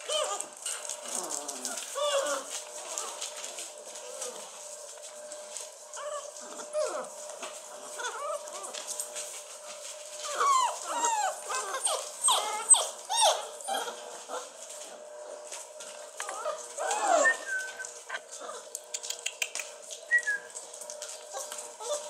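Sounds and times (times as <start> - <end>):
puppies whining and howling: 0.0 - 4.8, 5.8 - 9.1, 10.2 - 14.6, 16.1 - 18.8, 20.1 - 22.0
light ticks and rustles: 0.1 - 12.9, 17.6 - 22.0.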